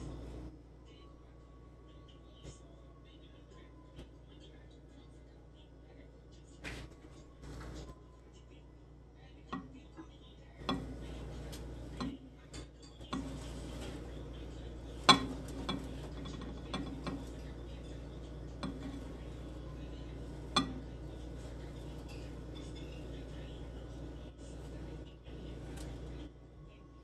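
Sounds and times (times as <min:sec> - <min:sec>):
low steady hum: 0:00.0 - 0:27.0
tableware clicking on bowl: 0:10.6 - 0:14.1, 0:14.9 - 0:23.1.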